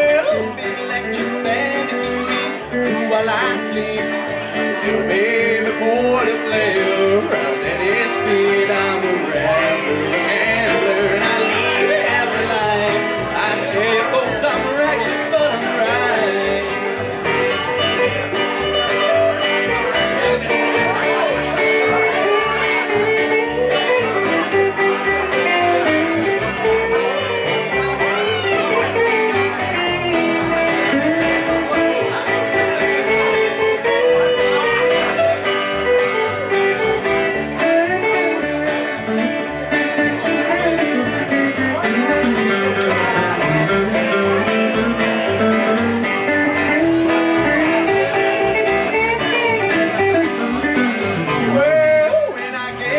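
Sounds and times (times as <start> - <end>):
lead guitar with bent notes: 0.0 - 52.9
plucked upright bass: 0.0 - 52.9
strummed acoustic guitar: 0.0 - 52.9.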